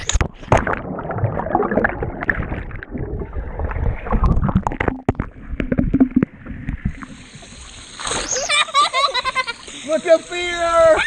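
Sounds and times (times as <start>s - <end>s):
muffled underwater churning water: 0.0s - 8.0s
water bubbling: 0.0s - 8.5s.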